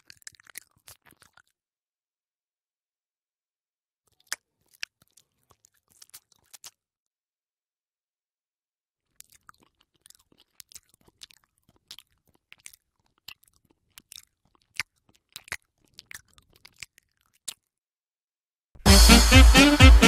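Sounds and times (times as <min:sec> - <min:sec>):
gum chewing wet smacks: 0:00.0 - 0:01.6, 0:04.1 - 0:06.9, 0:09.0 - 0:17.8.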